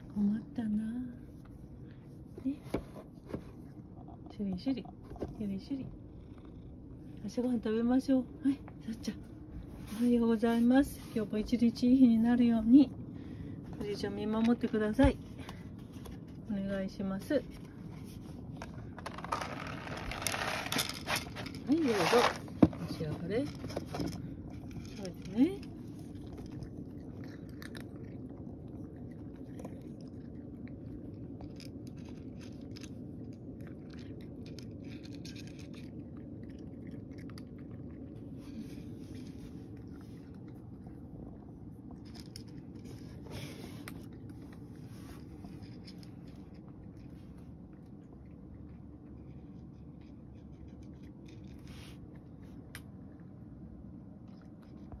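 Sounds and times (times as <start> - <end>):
steady low hum: 0.0 - 55.0
cat chewing food: 22.4 - 55.0.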